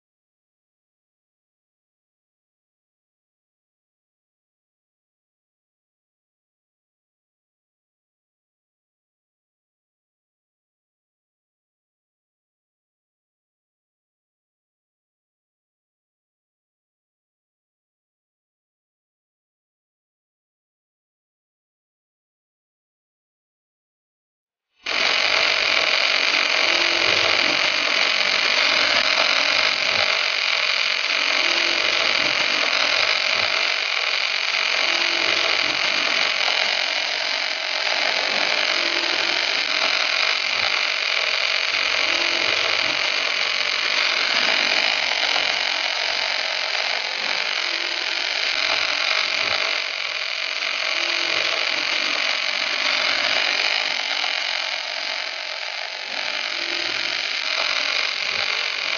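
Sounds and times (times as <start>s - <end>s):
welding arc hissing: 24.8s - 58.9s.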